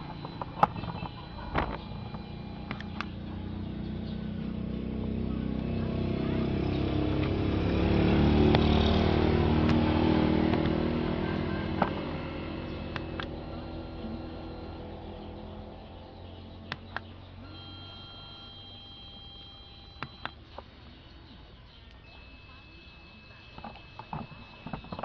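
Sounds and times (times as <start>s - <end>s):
vehicle passing by: 0.0s - 17.5s.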